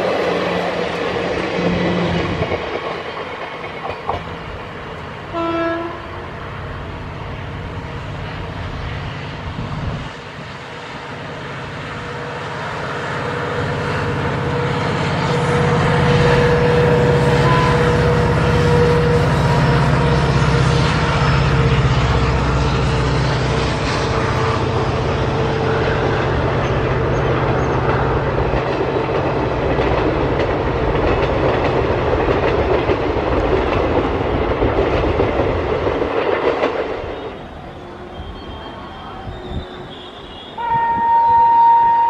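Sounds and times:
train coaches rattling over rail joints: 0.0 - 6.2, 10.0 - 41.4
diesel locomotive engine rumbling: 0.0 - 42.0
train horn blast: 5.3 - 6.3, 13.3 - 27.7, 37.0 - 42.0.

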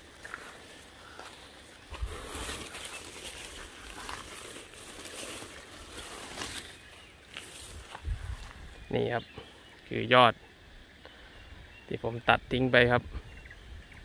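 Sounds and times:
leaves and twigs rustling: 0.0 - 10.0.

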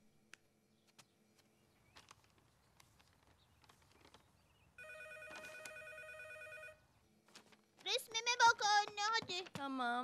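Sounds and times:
telephone ringing: 4.8 - 6.8.

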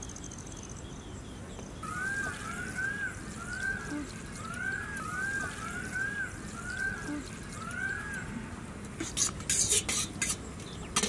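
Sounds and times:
bird whistled calls: 1.8 - 8.3.

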